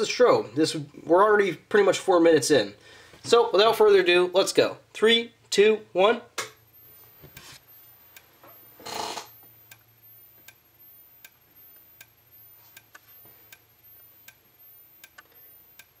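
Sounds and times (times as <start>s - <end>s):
strobe flash clicks: 6.5s - 16.0s
faint high-pitched whine rising: 6.6s - 16.0s.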